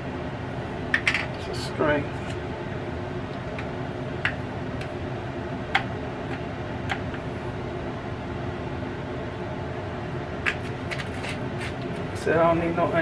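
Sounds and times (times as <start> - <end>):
air fryer fan hum: 0.0 - 13.0.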